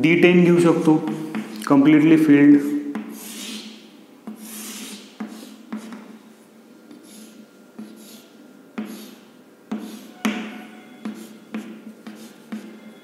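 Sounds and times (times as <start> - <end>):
chalk scratching on blackboard: 2.6 - 6.2, 6.9 - 13.0
chalk tapping on blackboard: 2.9 - 6.2, 6.9 - 12.8.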